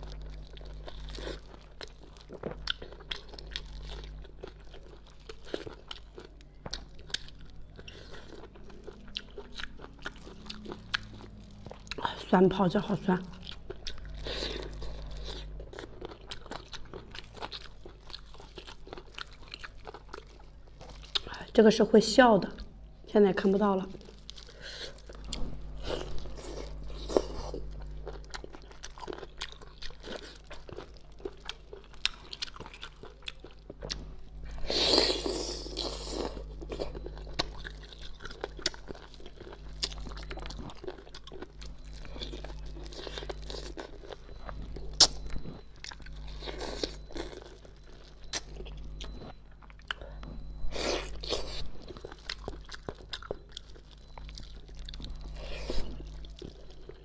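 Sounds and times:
crunchy chewing: 13.3s - 21.3s, 24.0s - 57.0s.

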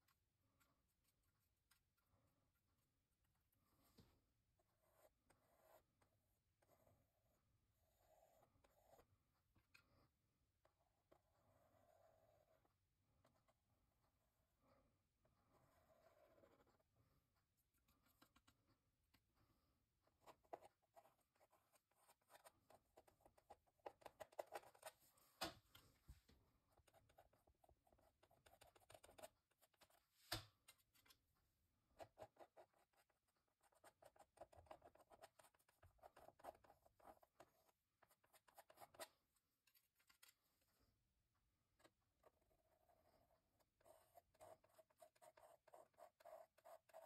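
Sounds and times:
palette knife scraping paint: 10.7s - 31.3s, 41.8s - 47.0s.

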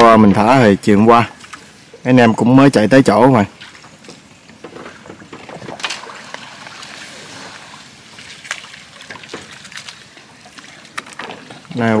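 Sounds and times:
water splashing and trickling: 0.0s - 12.0s.

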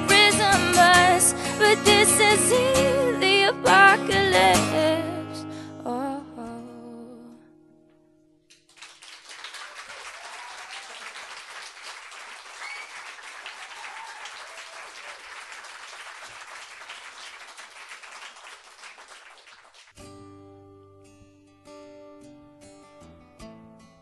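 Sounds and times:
audience applause: 8.6s - 20.0s.

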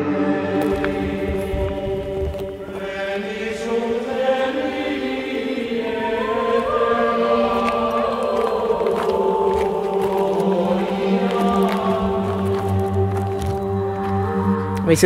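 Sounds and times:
slow sustained chords: 0.0s - 15.0s.

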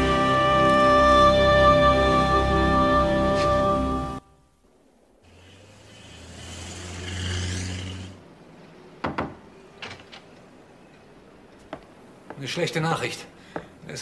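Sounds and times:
car passing with hiss: 4.6s - 9.0s.

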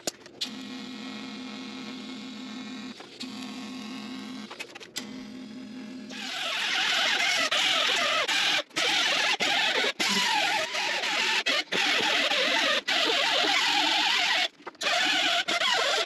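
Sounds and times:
die grinder grinding metal: 5.6s - 16.0s.

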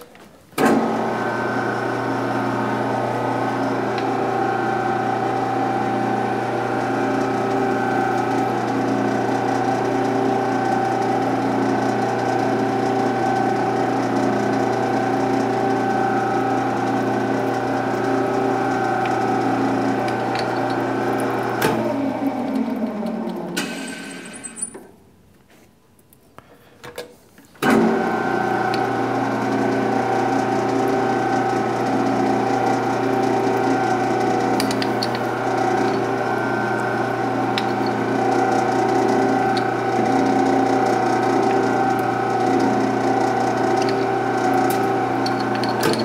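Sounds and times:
metal lathe humming: 0.8s - 24.6s, 27.7s - 46.0s
drill boring steel: 28.4s - 46.0s.

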